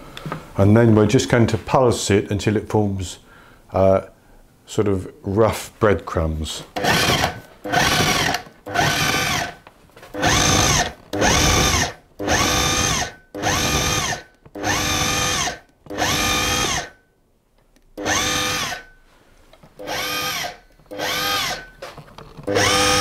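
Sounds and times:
food processor motor pulsing: 6.8s - 16.9s, 18.0s - 18.8s, 19.8s - 21.6s, 22.4s - 23.0s.

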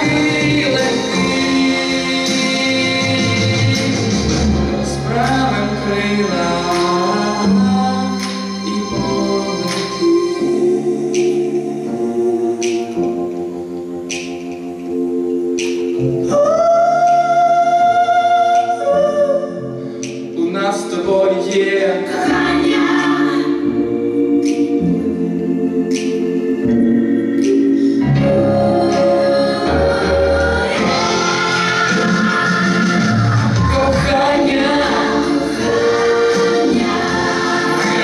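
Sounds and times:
amplified instrumental backing: 0.0s - 38.0s
man singing into microphone: 4.8s - 12.4s, 20.4s - 22.4s, 33.6s - 35.5s.

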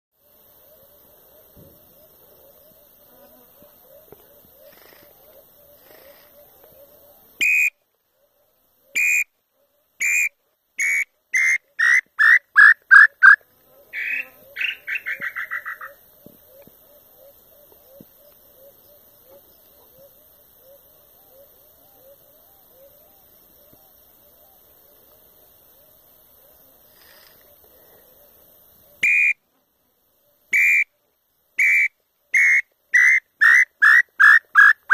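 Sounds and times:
whistled bird call notes: 9.0s - 9.3s, 29.0s - 29.4s, 31.6s - 34.8s.

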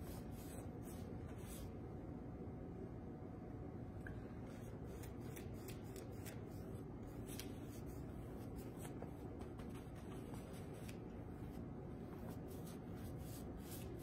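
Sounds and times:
low room hum: 0.0s - 14.0s
paintbrush brushing on canvas: 7.3s - 14.0s.

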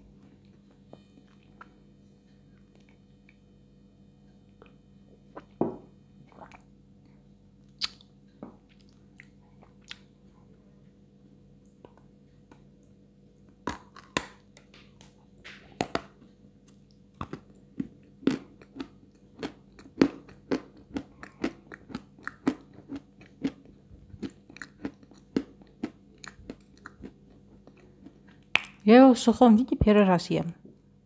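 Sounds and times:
chalk crunching while chewing: 17.2s - 28.5s.

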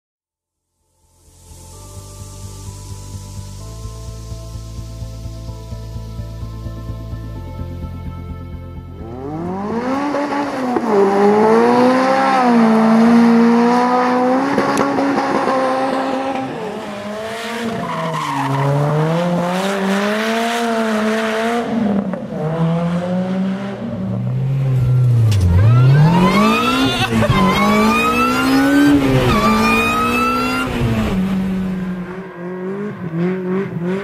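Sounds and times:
car engine revving hard: 9.0s - 34.0s
tyres squealing: 25.4s - 30.7s.

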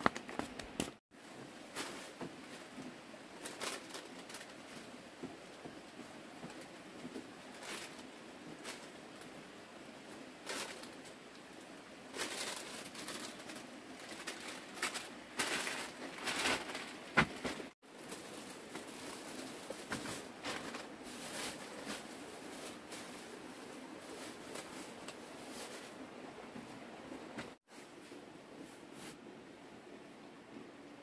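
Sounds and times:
plastic bags rustling: 1.2s - 9.3s, 10.4s - 11.2s, 12.1s - 26.0s.

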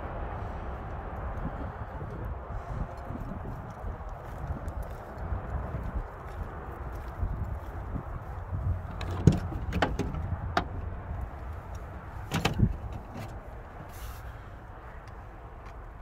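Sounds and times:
steady low rumble: 0.0s - 16.0s
car door clunks: 8.9s - 10.8s, 12.2s - 13.4s
car door handle and latch clicks: 8.9s - 10.8s, 12.2s - 13.4s.

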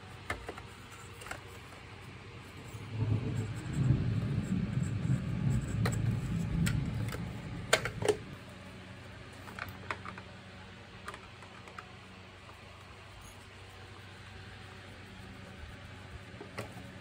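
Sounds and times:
plastic housing rubbing and scraping: 0.0s - 8.5s, 15.4s - 17.0s
plastic clicks and knocks: 9.5s - 10.3s.

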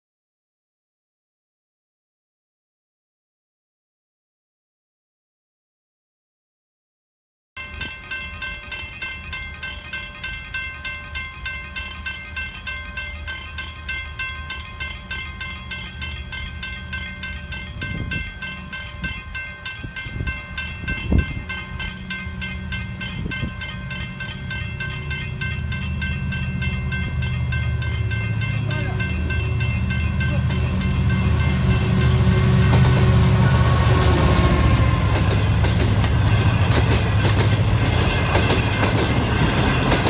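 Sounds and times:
level crossing bell ringing: 7.6s - 33.8s
locomotive rumble: 8.0s - 40.0s.

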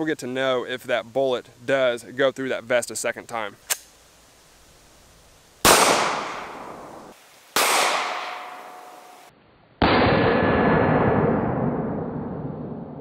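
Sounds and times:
pistol shots echoing: 5.7s - 7.0s, 7.6s - 10.6s
dull sustained boom: 9.8s - 13.0s.

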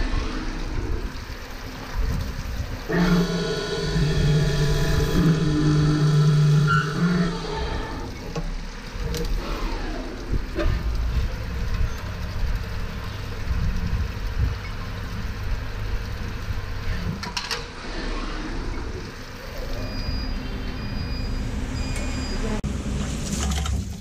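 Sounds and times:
coolant spraying: 0.0s - 20.5s
drilling machine running: 0.3s - 17.2s.

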